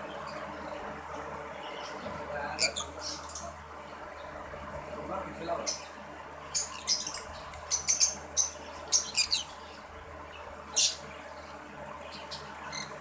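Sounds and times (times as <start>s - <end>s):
parrots chirping: 1.7s - 3.5s, 6.5s - 9.8s, 10.7s - 11.1s, 12.1s - 13.0s.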